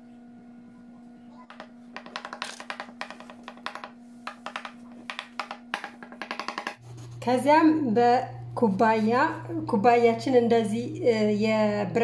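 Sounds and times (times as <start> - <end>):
fork tines tapping on countertop: 1.5 - 6.8.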